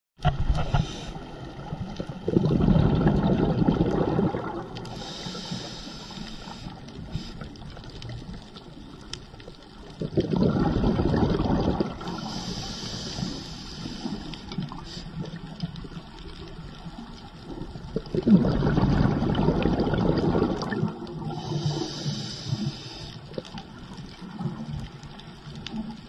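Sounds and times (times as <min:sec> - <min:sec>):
regulator inhalation hiss: 0:00.6 - 0:01.3, 0:04.9 - 0:07.7, 0:12.1 - 0:15.4, 0:21.2 - 0:23.4
bubbling exhalation underwater: 0:01.9 - 0:04.8, 0:09.9 - 0:12.3, 0:17.5 - 0:21.8.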